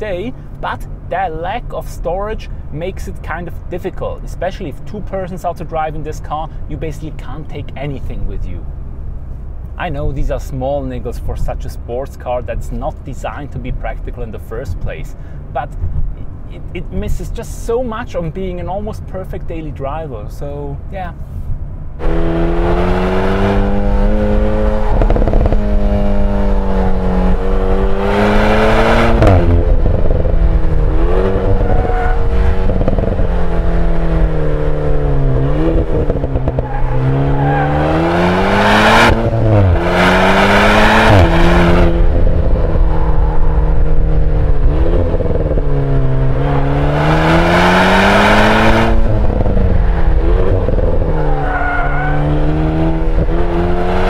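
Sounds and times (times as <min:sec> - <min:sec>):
exhaust surges: 0:21.2 - 0:54.0
car engine revving: 0:22.0 - 0:54.0.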